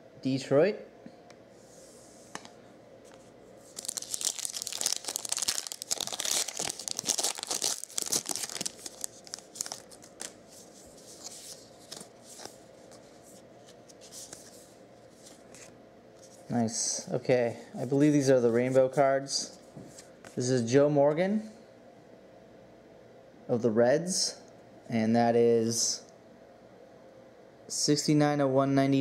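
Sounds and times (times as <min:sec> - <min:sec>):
plastic wrapper crinkling: 0:03.7 - 0:13.0.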